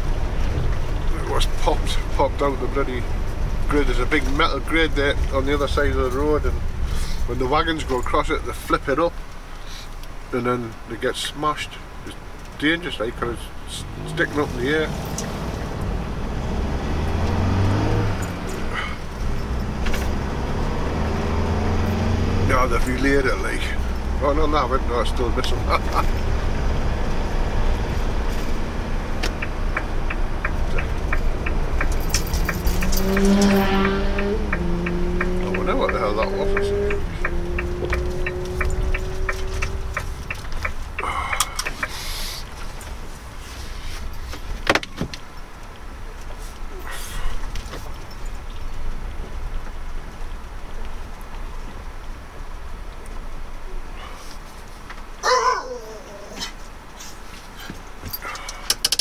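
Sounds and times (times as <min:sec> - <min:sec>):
vehicle engine and road noise: 0:00.0 - 0:59.0
turn signal ticking: 0:11.8 - 0:43.2
light rattles: 0:27.8 - 0:33.8
short hiss: 0:41.9 - 0:42.5.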